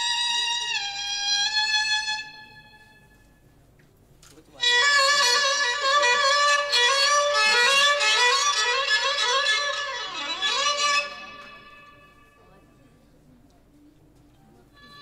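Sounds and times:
violin melodic phrase: 4.6 - 12.4.

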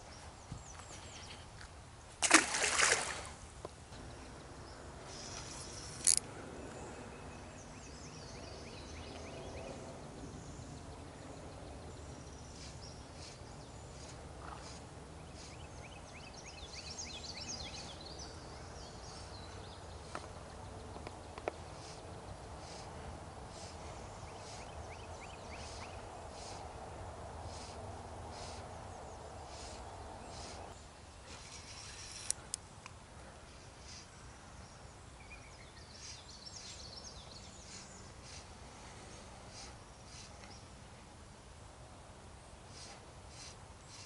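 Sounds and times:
quiet outdoor background: 0.0 - 44.0
fish splashing into water: 2.2 - 3.4.

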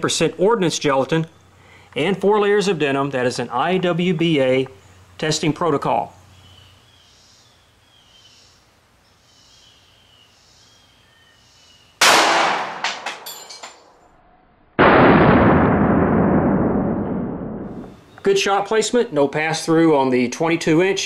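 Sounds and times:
faint bird chirps: 6.1 - 12.0
pistol shot with echo: 12.0 - 13.2, 14.8 - 17.8
slowed-down gunshot replay: 14.8 - 17.9.

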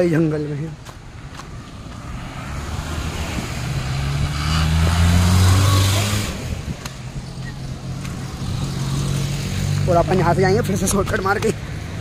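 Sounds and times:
jeep engine droning: 1.5 - 10.6.

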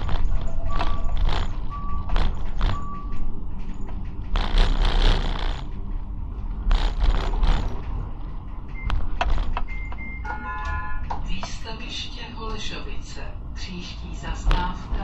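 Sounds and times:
rail grinding and scraping: 0.0 - 10.0
tram rumbling on track: 0.0 - 15.0.

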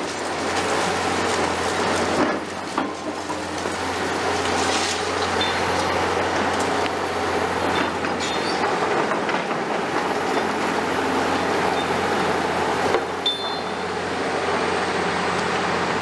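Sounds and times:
excavator engine running: 0.0 - 16.0
high squeaks: 8.2 - 8.6.

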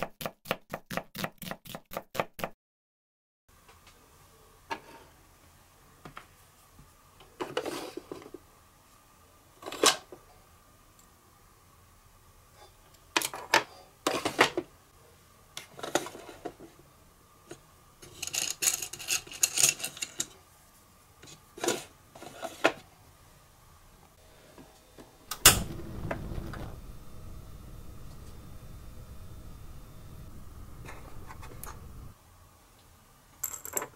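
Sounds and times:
toy cookware clattering: 18.0 - 20.4
gas burner rushing: 25.3 - 32.1.

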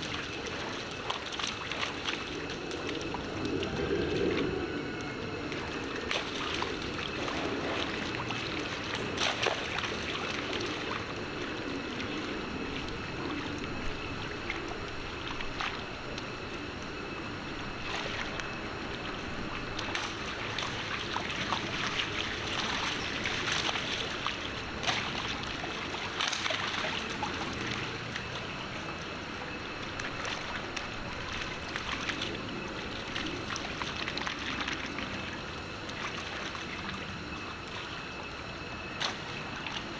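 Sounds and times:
splashing in puddle: 5.5 - 11.0, 19.8 - 28.4.

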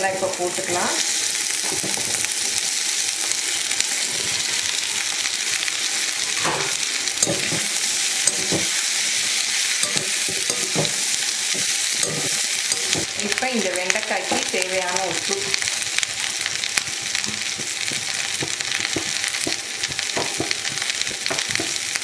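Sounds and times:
okra sizzling in oil: 0.0 - 22.0
spatula scraping pan: 6.4 - 13.2.

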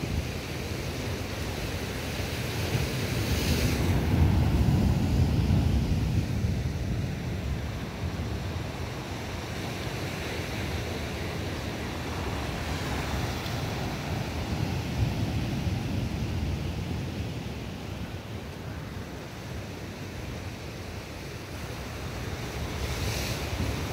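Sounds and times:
sea waves breaking on shore: 0.0 - 23.9
wind buffeting microphone: 2.8 - 18.1.

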